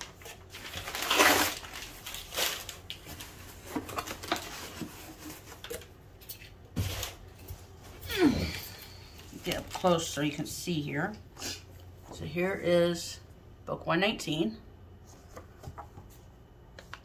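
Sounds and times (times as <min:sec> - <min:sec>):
paper and plastic rustling: 0:00.0 - 0:08.0, 0:09.1 - 0:10.3.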